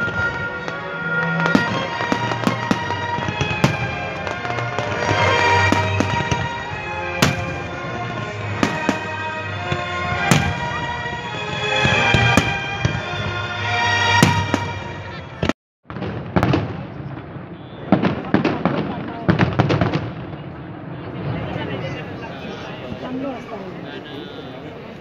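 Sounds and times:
music playing: 0:00.0 - 0:15.5
fireworks bangs and crackles: 0:00.0 - 0:22.2.

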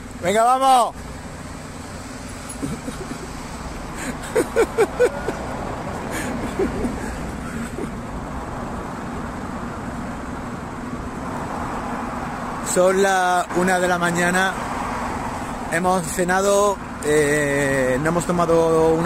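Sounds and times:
city street traffic: 0:00.0 - 0:19.0
man laughing: 0:02.5 - 0:08.1.

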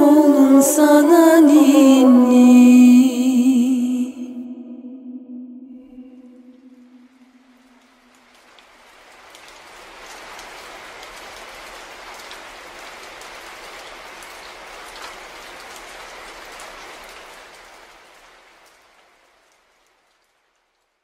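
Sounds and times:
steady rain: 0:00.0 - 0:04.0, 0:05.8 - 0:21.0
rain drop patters: 0:06.2 - 0:21.0.

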